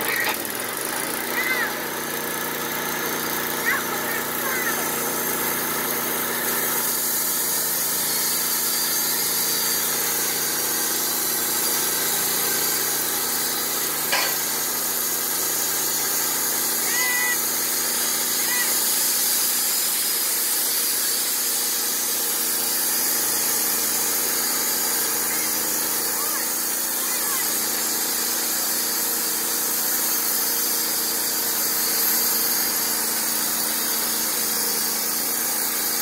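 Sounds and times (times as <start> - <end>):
band sawmill running: 0.0 - 36.0.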